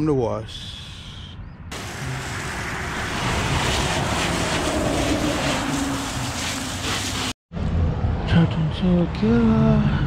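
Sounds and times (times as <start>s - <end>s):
water spraying onto a car: 1.8s - 7.4s.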